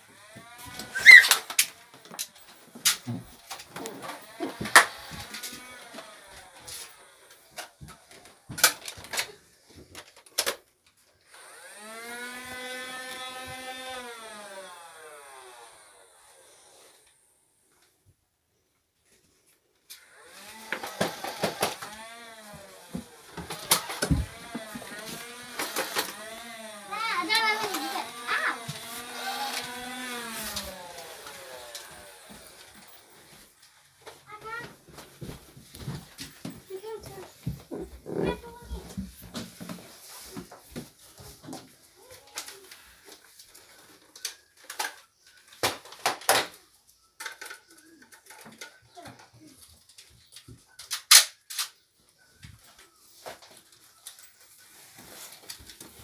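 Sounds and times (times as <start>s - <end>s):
toy blaster motor whirring: 0.0s - 9.4s, 11.2s - 17.4s, 19.9s - 33.7s, 42.0s - 46.6s.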